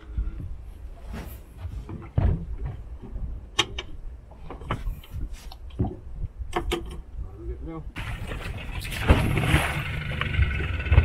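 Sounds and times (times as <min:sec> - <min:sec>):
low rumbling background: 0:00.0 - 0:11.0
low thud: 0:08.0 - 0:09.8.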